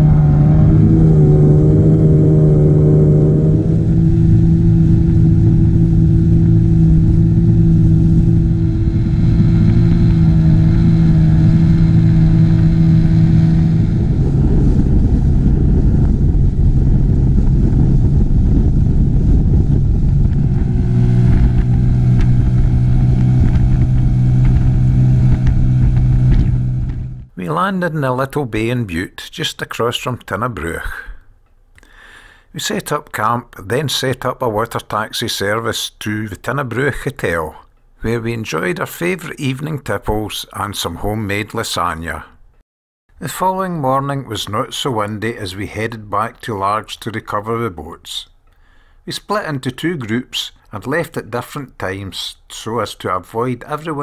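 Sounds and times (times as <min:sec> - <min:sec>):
wind and water rushing: 0:00.0 - 0:27.2
outboard motor running: 0:00.0 - 0:27.3.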